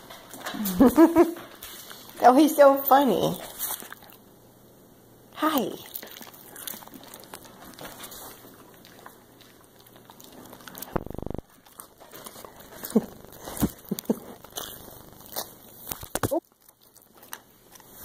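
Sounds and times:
dog snuffling and licking: 0:00.2 - 0:04.3, 0:05.6 - 0:18.0.

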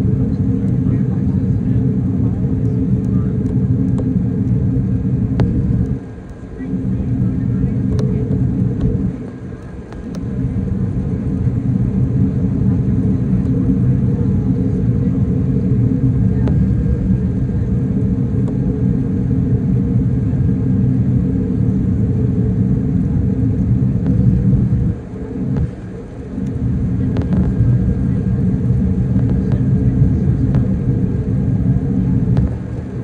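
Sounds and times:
airliner cabin rumble: 0:00.0 - 0:33.0.

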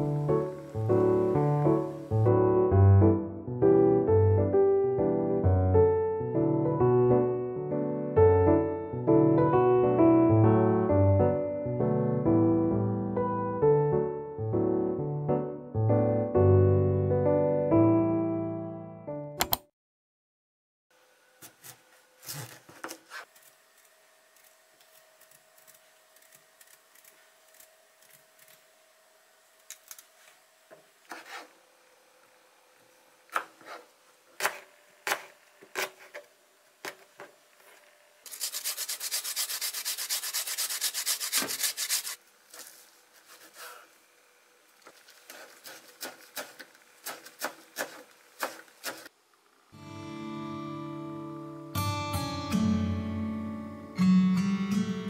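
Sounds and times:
knife cutting on cutting board: 0:33.4 - 0:36.2, 0:38.3 - 0:42.2
rapid knife chopping: 0:38.3 - 0:42.2, 0:45.3 - 0:49.1.

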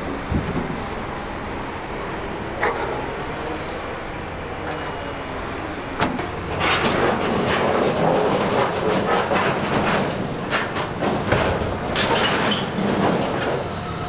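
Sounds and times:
excavator machine noise: 0:00.0 - 0:14.0
metal sheets clattering and scraping: 0:06.2 - 0:13.8.

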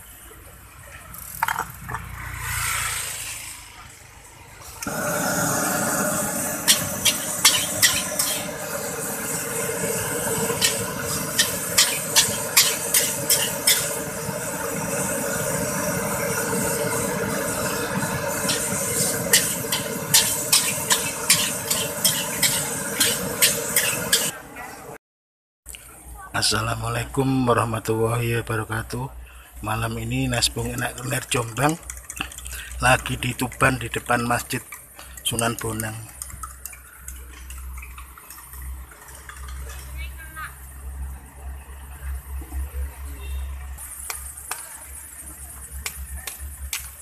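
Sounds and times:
frying sizzle: 0:04.8 - 0:24.4, 0:30.0 - 0:42.4, 0:43.8 - 0:47.0.

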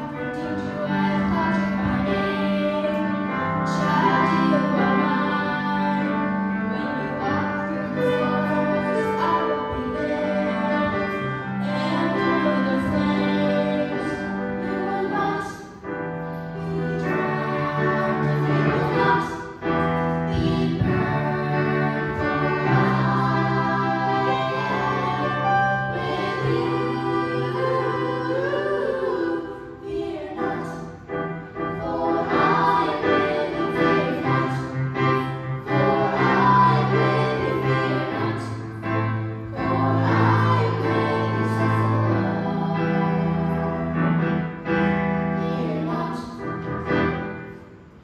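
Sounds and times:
group singing worship song: 0:00.0 - 0:15.8, 0:16.4 - 0:44.4
instrumental accompaniment: 0:00.0 - 0:48.0
held bass notes: 0:16.1 - 0:47.4.

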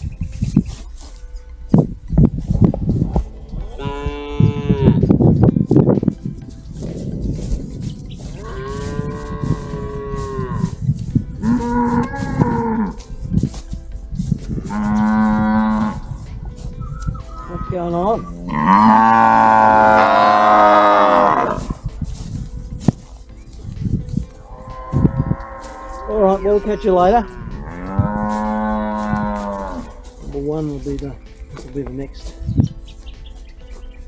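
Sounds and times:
cows mooing: 0:03.4 - 0:05.2, 0:08.2 - 0:10.8, 0:11.4 - 0:13.1, 0:14.5 - 0:16.2, 0:17.2 - 0:21.8, 0:24.5 - 0:30.1.

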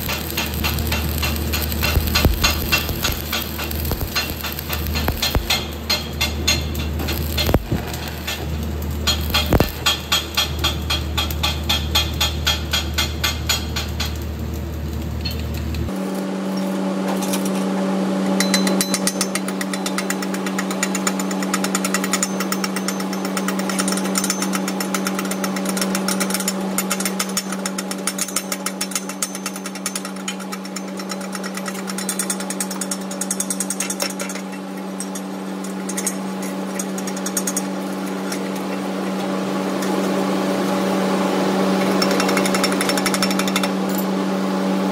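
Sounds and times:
steady hum: 0:00.0 - 0:11.2
chipping hammer tapping metal: 0:00.0 - 0:14.2, 0:18.3 - 0:40.1, 0:41.8 - 0:44.0.

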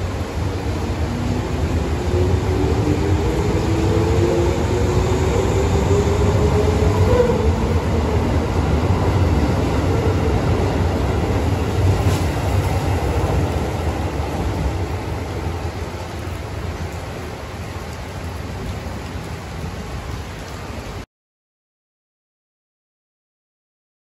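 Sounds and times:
train wheels rumbling on rails: 0:00.0 - 0:18.5.

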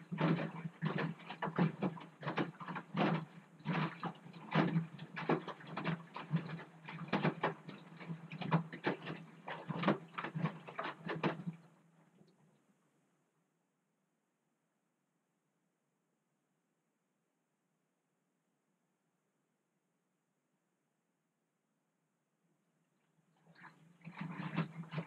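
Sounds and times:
washing machine motor hum: 0:00.0 - 0:11.6, 0:23.6 - 0:25.0
laundry sloshing in drum: 0:00.0 - 0:11.9, 0:23.3 - 0:25.0.

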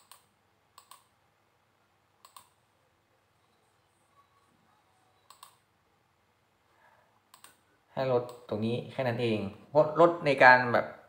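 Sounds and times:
mouse button clicking: 0:05.3 - 0:05.6.

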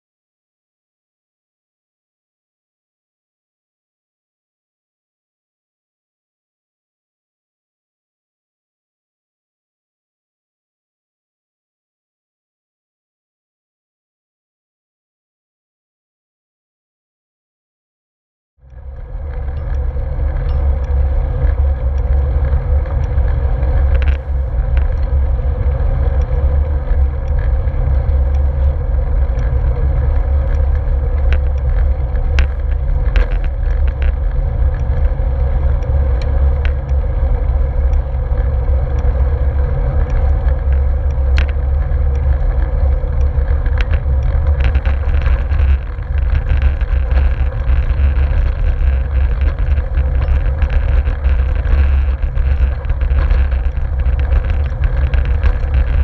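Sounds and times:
grit ticking: 0:18.7 - 0:56.0
wind buffeting camera: 0:18.7 - 0:56.0
tyres rolling on gravel: 0:40.4 - 0:56.0.

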